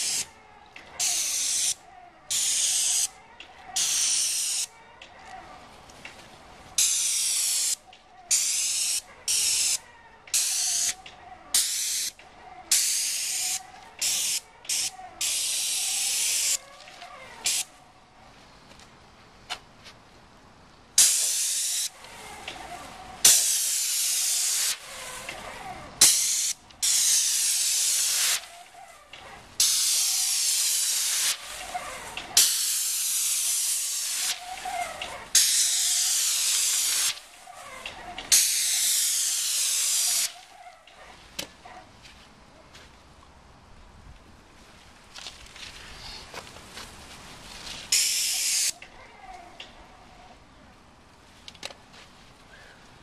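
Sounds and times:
paint spray gun hissing: 0:00.0 - 0:00.3, 0:01.0 - 0:03.2, 0:03.8 - 0:04.7, 0:06.8 - 0:16.6, 0:17.4 - 0:17.7, 0:21.0 - 0:25.4, 0:26.0 - 0:28.8, 0:29.6 - 0:40.4, 0:47.9 - 0:48.8.

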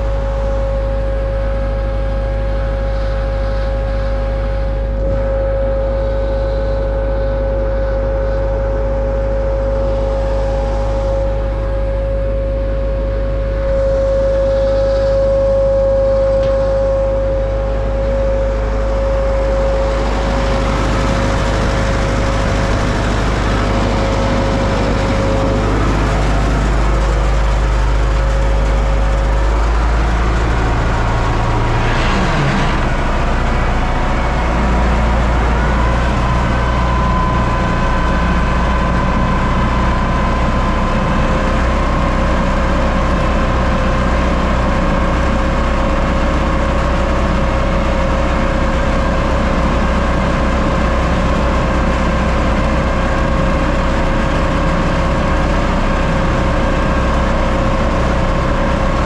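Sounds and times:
brief falling tone: 0:00.0 - 0:28.4, 0:29.7 - 0:41.2
diesel tractor engine running: 0:00.0 - 0:59.0
steady whine: 0:00.0 - 0:59.0.

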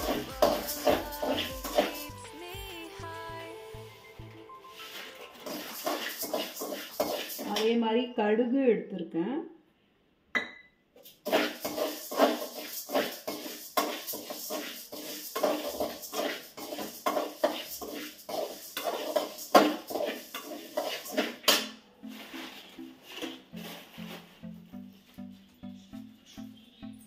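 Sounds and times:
metal spatula scraping a pan: 0:00.0 - 0:02.1, 0:04.6 - 0:07.8, 0:11.0 - 0:24.3
soft background music: 0:00.0 - 0:06.2, 0:21.8 - 0:27.0.

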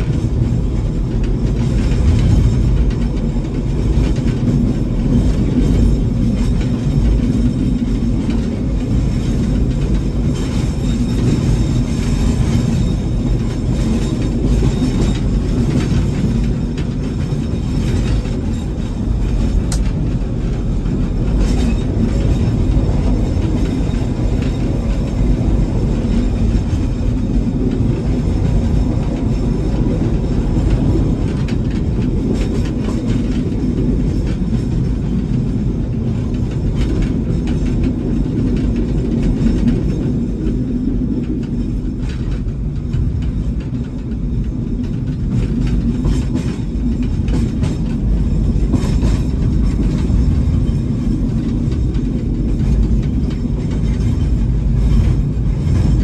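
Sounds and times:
train engine and wheels drone: 0:00.0 - 0:56.0.

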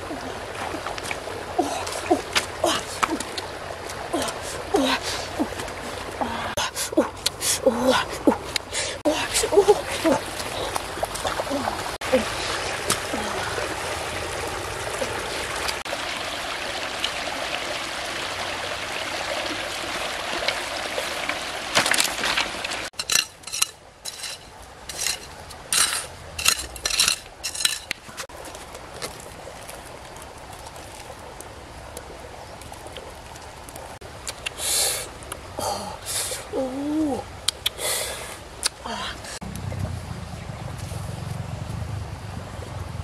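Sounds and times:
digging blade striking stony soil: 0:23.0 - 0:28.0
steady rushing noise: 0:39.4 - 0:43.0.

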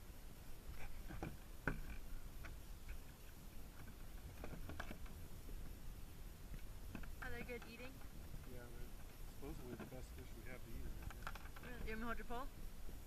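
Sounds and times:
scattered ticks and knocks: 0:01.1 - 0:03.1, 0:03.7 - 0:05.8, 0:06.5 - 0:10.3, 0:11.0 - 0:12.0.

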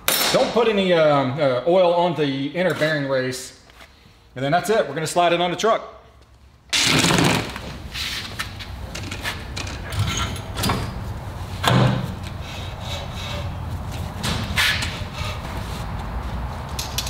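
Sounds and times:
metal sliding and scraping: 0:07.9 - 0:16.0.

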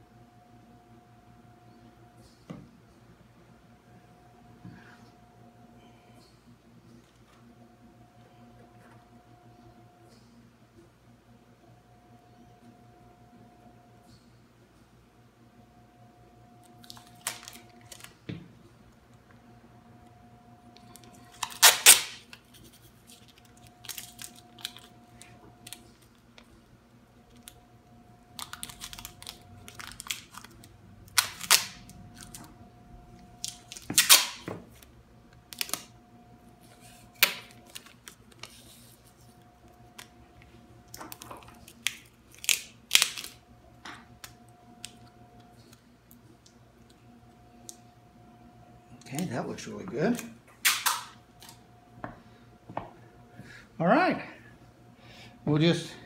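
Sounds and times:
tape crinkling: 0:16.6 - 0:18.2, 0:20.7 - 0:26.5, 0:27.3 - 0:27.6, 0:28.3 - 0:32.5, 0:33.2 - 0:35.9, 0:36.6 - 0:46.6
packing tape ripping off roll: 0:16.8 - 0:18.2, 0:20.9 - 0:26.0, 0:28.4 - 0:32.4, 0:33.4 - 0:34.9, 0:35.5 - 0:35.9, 0:41.1 - 0:43.4, 0:50.1 - 0:51.6.

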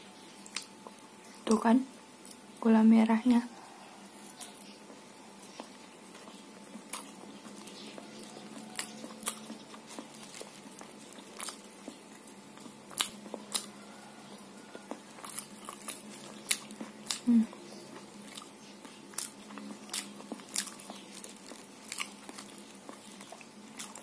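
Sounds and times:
faint steady hum: 0:00.0 - 0:24.0
mouth clicks and smacks: 0:00.4 - 0:01.6
quiet chewing: 0:00.4 - 0:01.6, 0:02.2 - 0:02.5, 0:03.4 - 0:24.0.

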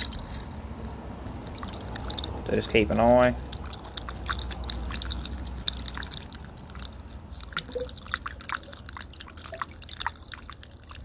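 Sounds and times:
liquid gurgling: 0:00.0 - 0:11.0
small liquid drips and plops: 0:00.0 - 0:11.0.

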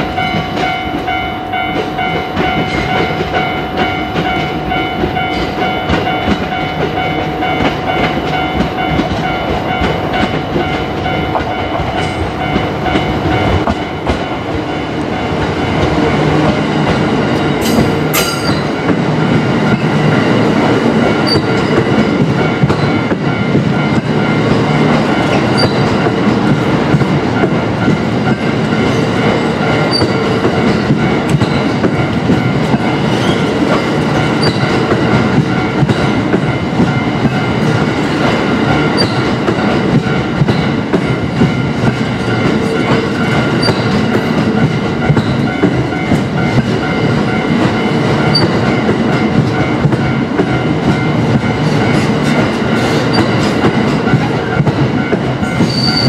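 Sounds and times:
crossing warning bell: 0:00.0 - 0:56.0
train wheels clattering over joints: 0:00.0 - 0:56.0.

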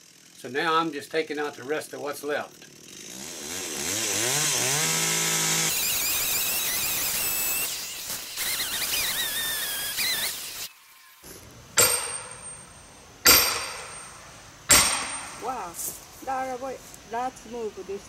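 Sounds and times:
chainsaw cutting wood: 0:00.0 - 0:00.4, 0:01.5 - 0:17.1
sledgehammer striking steel wedge: 0:11.3 - 0:15.7.

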